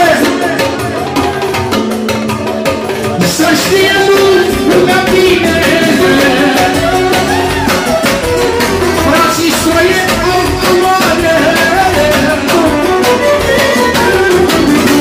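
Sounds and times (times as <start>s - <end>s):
man singing into microphone: 0.0s - 1.5s, 3.1s - 8.0s, 8.8s - 15.0s
backing music with steady beat: 0.0s - 15.0s.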